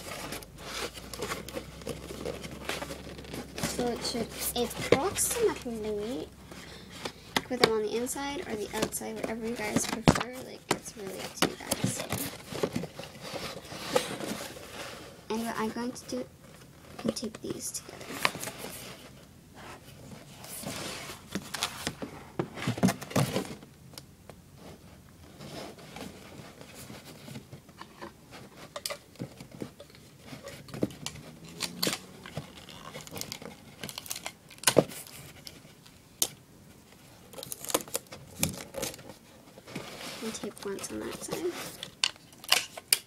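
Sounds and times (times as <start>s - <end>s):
cardboard rustling and tapping: 0.0s - 14.8s, 15.4s - 24.4s, 25.3s - 43.0s
sticky tape pulled and torn: 31.0s - 34.8s, 37.3s - 39.0s.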